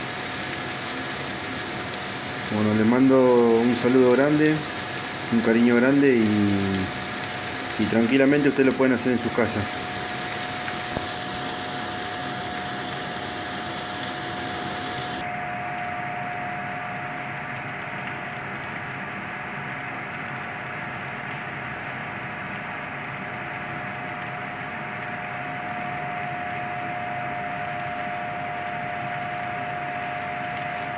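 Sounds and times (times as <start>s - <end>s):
food sizzling on griddle: 0.0s - 15.4s
steady hum with whine: 5.2s - 18.9s, 22.5s - 30.9s.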